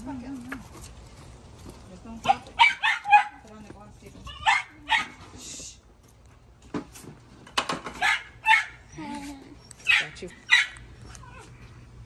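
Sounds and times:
dog barking: 2.3s - 3.4s, 4.4s - 5.2s, 8.0s - 8.8s, 9.9s - 10.8s.

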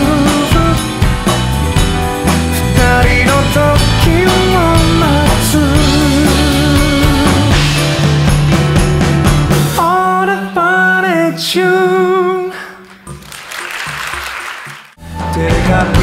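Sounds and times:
pop band playing: 0.0s - 12.2s, 13.1s - 16.0s
audience applause: 13.0s - 15.0s.

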